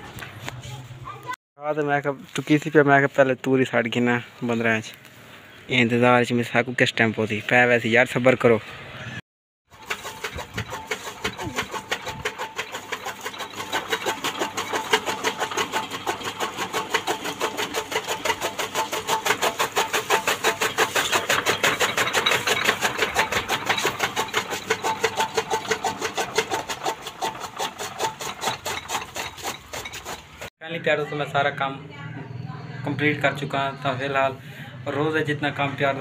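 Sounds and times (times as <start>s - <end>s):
chaff cutter mechanical clatter: 9.7s - 30.5s.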